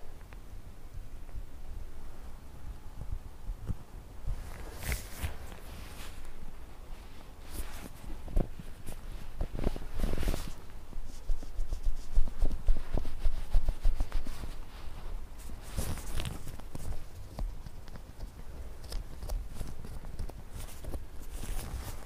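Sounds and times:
fingers rubbing on foam: 7.4s - 22.0s.

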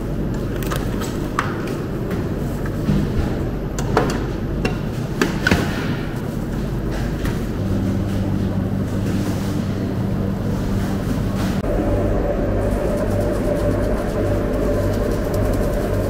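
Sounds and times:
stand mixer motor humming: 7.7s - 16.0s.

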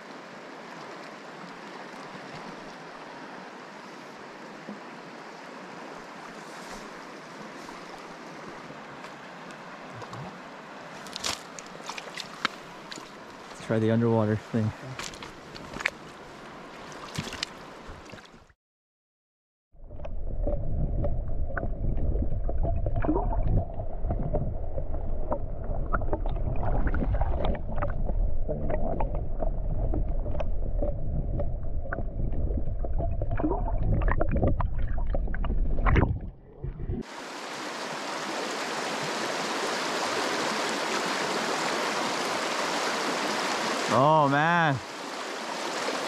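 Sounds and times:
rushing river hiss: 0.0s - 17.9s, 37.0s - 46.0s
underwater clicks and ticks: 11.1s - 13.6s, 15.0s - 16.2s, 17.1s - 18.2s, 19.9s - 37.0s
underwater current rumble: 19.8s - 37.2s.

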